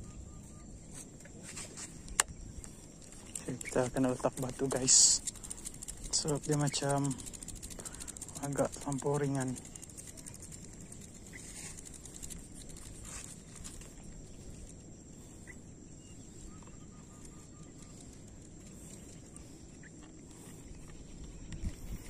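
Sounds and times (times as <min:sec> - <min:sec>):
bird chirping: 0:00.0 - 0:01.1, 0:01.9 - 0:22.0
thin steady high tone: 0:00.0 - 0:22.0
wind rumble on microphone: 0:20.3 - 0:22.0.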